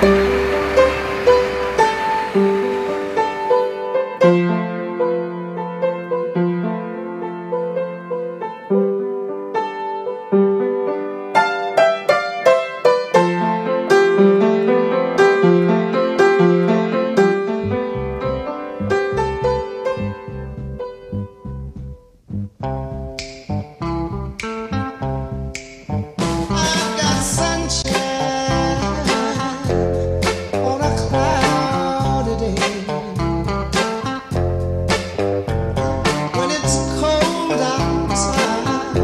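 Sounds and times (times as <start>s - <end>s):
deep bass line: 0.0s - 3.6s, 17.5s - 39.0s
melody of quick separate notes: 0.0s - 4.4s.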